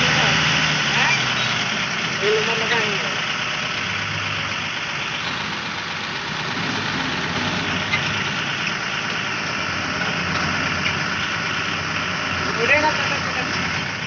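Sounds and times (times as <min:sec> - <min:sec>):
truck diesel engine running: 0:00.0 - 0:14.0.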